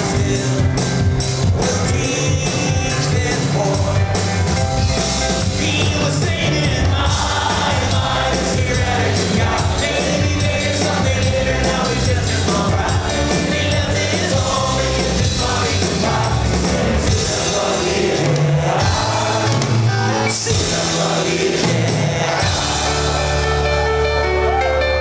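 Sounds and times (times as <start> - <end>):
person singing: 0.0 - 0.8, 1.4 - 4.1, 5.4 - 16.4
live rock band playing: 0.0 - 25.0.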